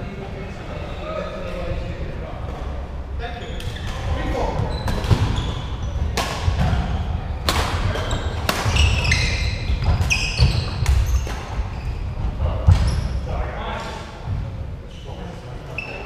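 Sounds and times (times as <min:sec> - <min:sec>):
shoes squeaking on wooden court: 0:03.4 - 0:07.2, 0:07.9 - 0:13.2, 0:14.9 - 0:16.0
rackets hitting shuttlecock: 0:06.1 - 0:11.5.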